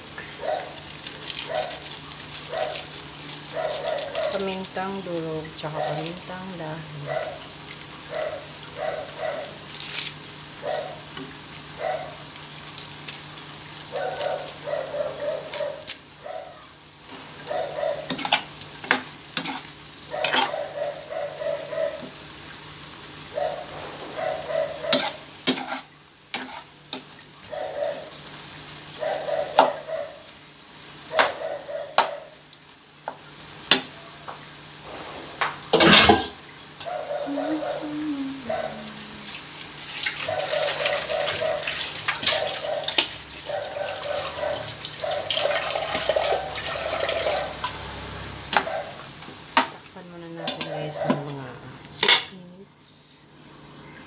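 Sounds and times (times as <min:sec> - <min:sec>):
pork sizzling in a frying pan: 0:00.0 - 0:54.0
metal spoon scraping a pan: 0:18.0 - 0:20.6, 0:23.8 - 0:27.0.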